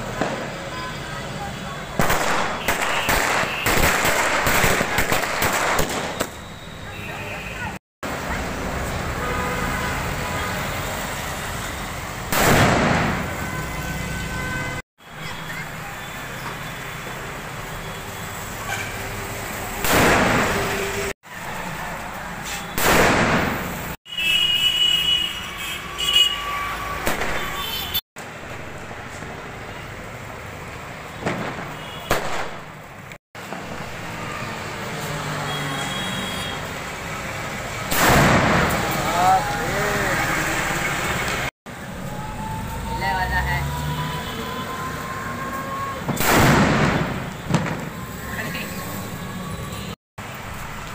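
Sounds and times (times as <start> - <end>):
loud firecracker bang: 0.1 - 0.6, 2.0 - 6.4, 12.3 - 13.4, 19.8 - 20.8, 22.8 - 23.8, 31.2 - 32.8, 37.9 - 39.0, 46.0 - 48.0
firecracker fuse sparking: 1.9 - 6.4, 22.1 - 24.0, 37.8 - 39.0, 46.0 - 48.1.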